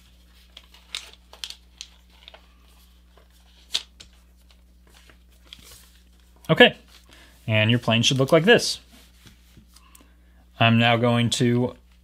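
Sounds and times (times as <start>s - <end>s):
paper rustling: 0.0s - 7.1s.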